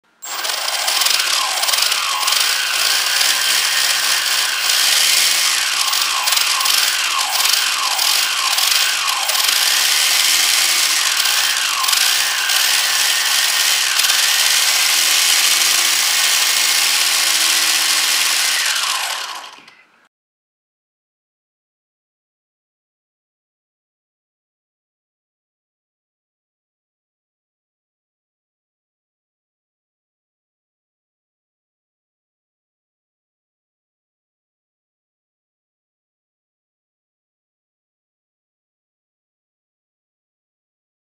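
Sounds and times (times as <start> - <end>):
electric motor and gearbox whining: 0.2 - 19.9.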